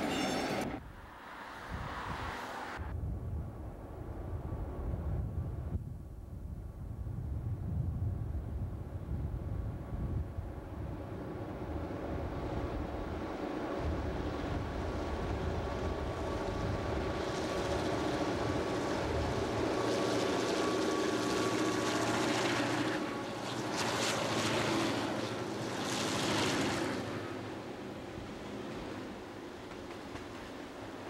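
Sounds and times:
diesel locomotive engines: 0.0s - 1.8s, 10.4s - 31.0s.

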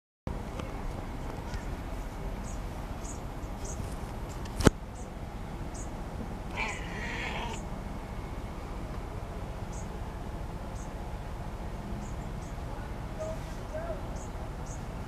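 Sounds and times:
cat meowing: 6.5s - 7.6s.

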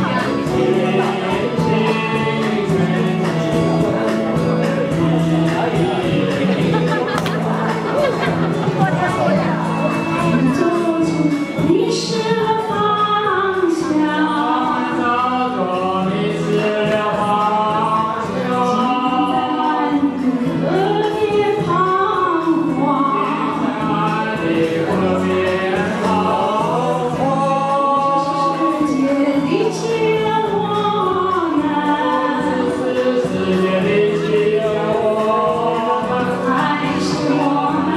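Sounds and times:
karaoke backing track: 0.0s - 37.9s
woman and man singing duet: 0.0s - 37.9s.

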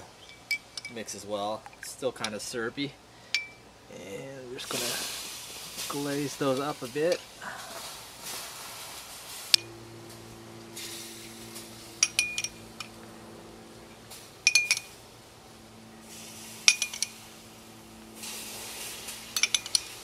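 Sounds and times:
metal spoon clinking on ceramic mug: 12.0s - 12.9s, 16.6s - 17.2s, 19.4s - 19.9s.

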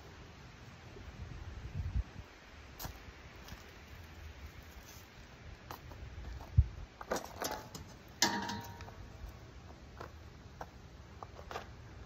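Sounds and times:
metal clanking: 7.3s - 9.0s
ringing metal clang: 8.2s - 9.0s.

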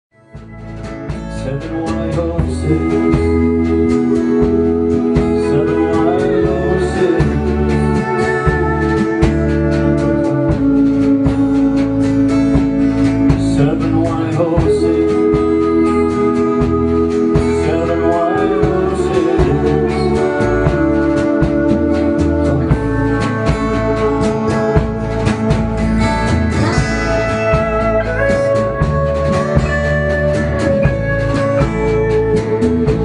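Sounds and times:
acoustic guitar: 0.1s - 33.0s
man singing into a microphone: 1.3s - 11.4s, 13.3s - 25.2s.

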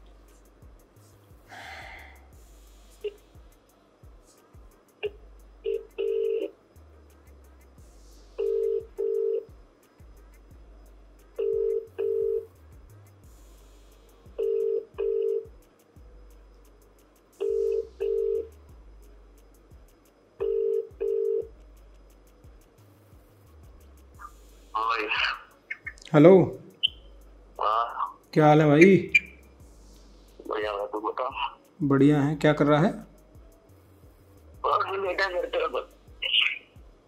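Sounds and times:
low background music: 0.0s - 37.0s
phone ringback tone: 5.7s - 6.5s, 8.4s - 9.4s, 11.4s - 12.5s, 14.4s - 15.5s, 17.4s - 18.5s, 20.4s - 21.5s.

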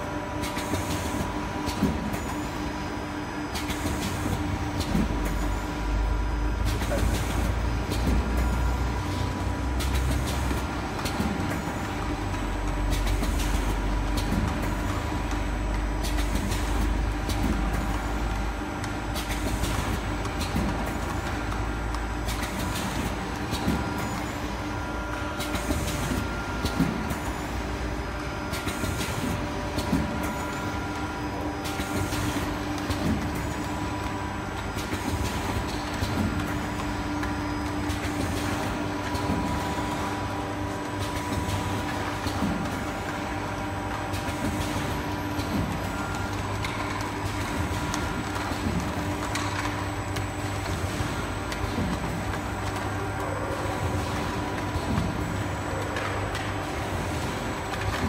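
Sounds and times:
machine clicks and knocks: 28.5s - 58.0s.

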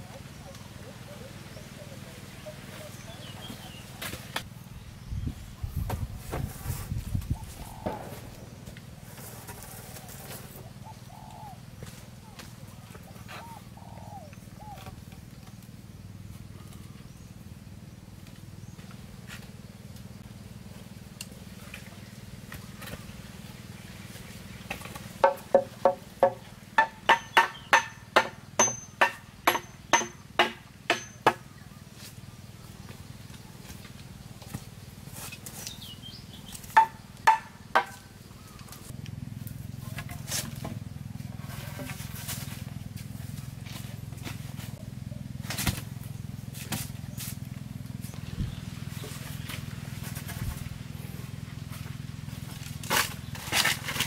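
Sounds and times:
hand tool striking wood: 24.7s - 31.4s, 36.6s - 38.1s.

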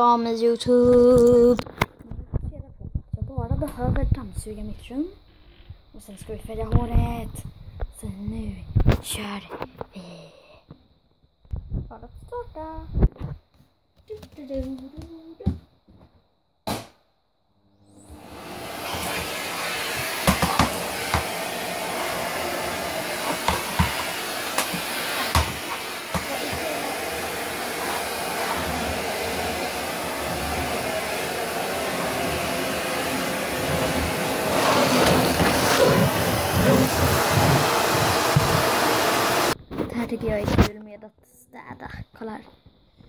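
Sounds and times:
vacuum cleaner motor running: 17.9s - 39.6s.

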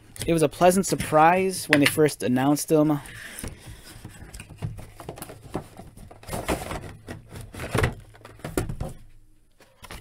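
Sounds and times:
cardboard box and plastic tray handled: 3.8s - 9.0s.

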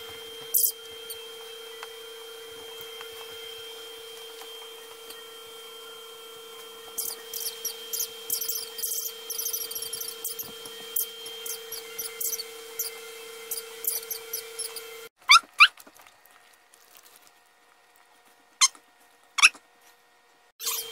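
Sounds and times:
high squeaks: 7.0s - 15.4s, 20.6s - 20.9s.

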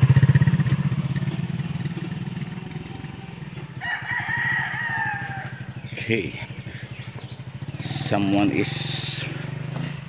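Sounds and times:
drawn-out high call: 0.0s - 10.0s
small motorcycle engine: 0.0s - 10.0s.

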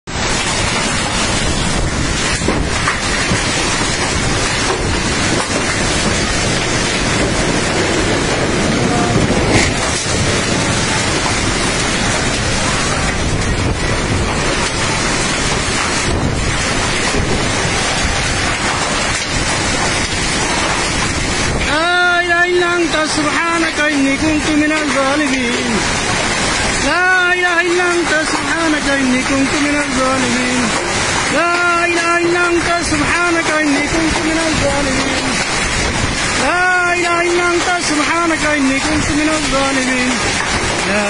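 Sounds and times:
heavy rain: 0.0s - 41.0s
storm wind: 0.1s - 41.0s
wind buffeting microphone: 0.1s - 41.0s.

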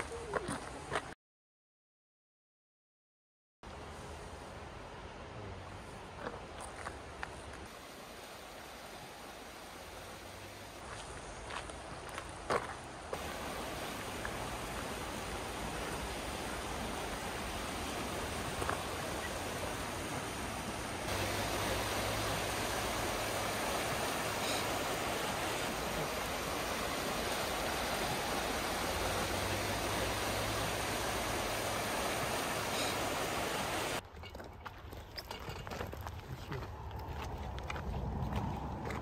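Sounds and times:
river rushing over stones: 3.7s - 34.0s.

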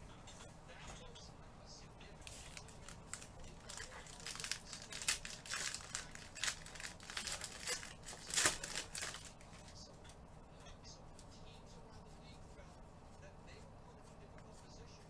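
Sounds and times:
plastic wrapper crinkling: 2.2s - 9.7s.

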